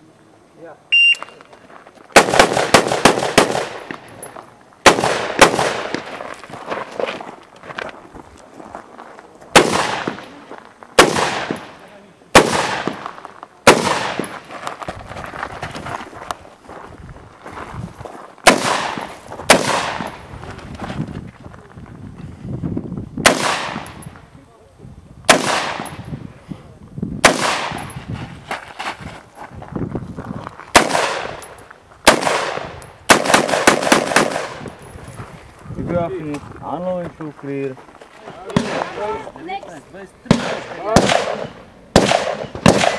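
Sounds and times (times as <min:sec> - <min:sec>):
rifle shots with echo: 0:02.2 - 0:04.1, 0:04.8 - 0:06.1, 0:09.5 - 0:10.4, 0:11.0 - 0:14.3, 0:18.4 - 0:20.2, 0:23.2 - 0:24.0, 0:25.3 - 0:26.1, 0:27.2 - 0:27.9, 0:30.7 - 0:31.4, 0:32.0 - 0:34.8, 0:38.5 - 0:39.0, 0:40.3 - 0:42.9.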